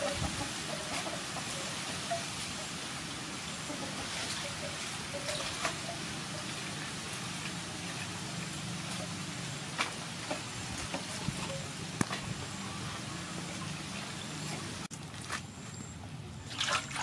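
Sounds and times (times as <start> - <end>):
steady background hiss: 0.0 - 14.9
water splashing in metal basin: 16.5 - 17.0.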